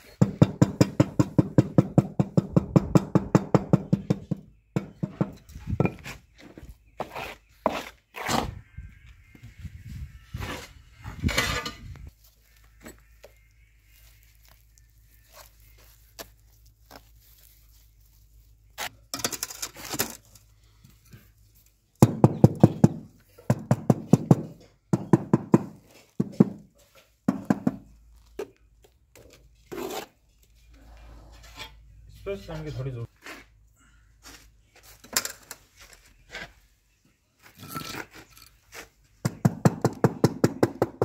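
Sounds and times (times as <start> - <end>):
trowel scraping tiles: 7.0 - 8.6, 29.6 - 30.2, 37.4 - 38.9.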